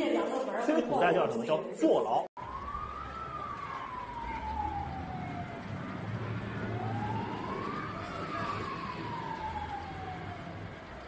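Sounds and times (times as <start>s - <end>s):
emergency siren wailing: 2.4s - 11.0s.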